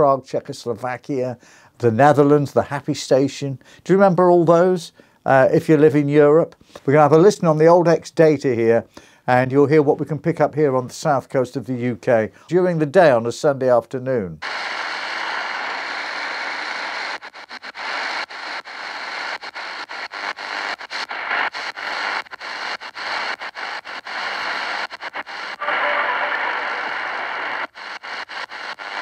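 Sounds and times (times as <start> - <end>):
radio static and hiss: 14.4 - 29.0.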